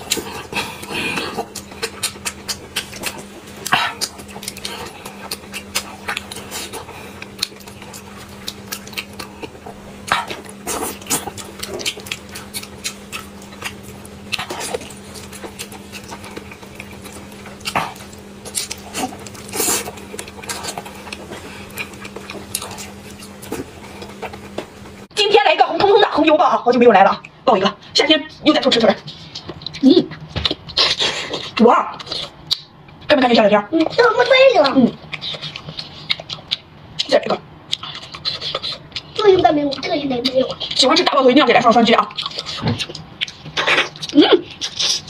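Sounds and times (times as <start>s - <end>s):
person chewing: 0.0s - 25.1s, 29.0s - 33.1s, 33.8s - 41.1s, 41.7s - 45.0s.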